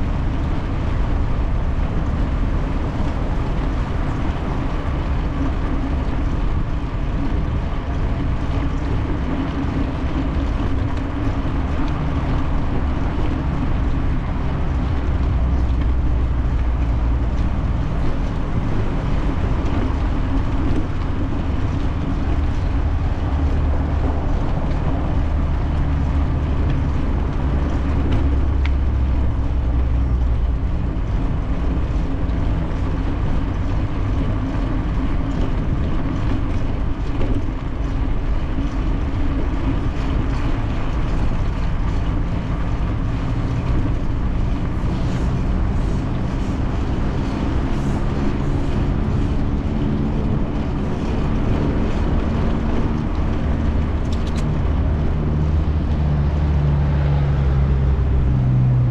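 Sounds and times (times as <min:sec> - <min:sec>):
tyre and road noise: 0:00.0 - 0:58.9
wind rumble: 0:00.0 - 0:58.9.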